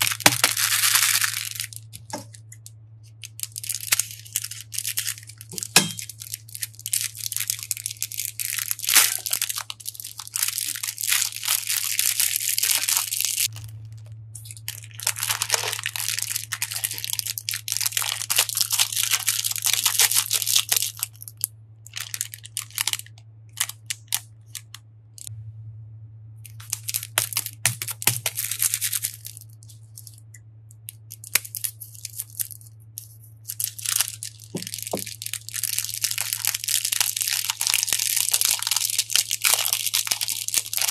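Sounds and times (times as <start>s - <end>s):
beads pouring into glass dish: 0.0s - 1.8s
plastic bags crinkling: 0.0s - 24.8s, 26.5s - 30.2s, 30.9s - 40.9s.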